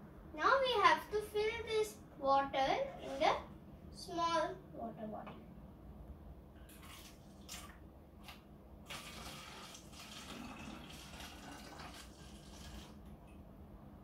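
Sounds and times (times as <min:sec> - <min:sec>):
water stream filling bottle: 0:08.8 - 0:13.2.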